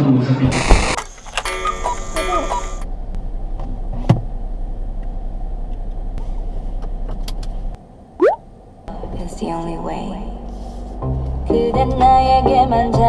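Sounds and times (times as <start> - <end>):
short rising whistle-like tone: 8.2 - 8.4.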